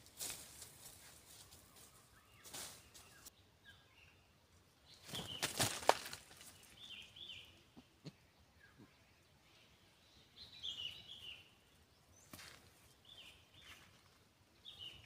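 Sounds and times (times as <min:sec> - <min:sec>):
small birds chirping: 0:00.0 - 0:15.0
owl wing flaps and rustling: 0:05.0 - 0:06.7.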